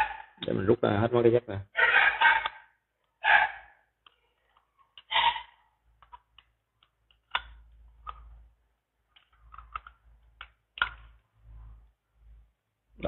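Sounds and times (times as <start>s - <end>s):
screwdriver clicks and taps: 6.0s - 8.3s.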